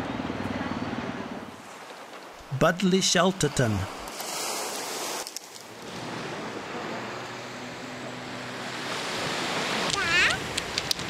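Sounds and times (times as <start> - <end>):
small waves on shingle beach: 3.2 - 11.0.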